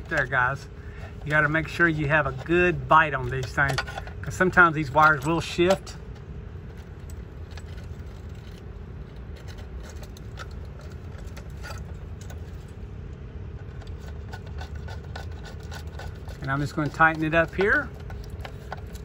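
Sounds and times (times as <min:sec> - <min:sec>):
steady low hum: 0:00.0 - 0:19.0
wire clicking and scraping in terminal: 0:00.0 - 0:19.0.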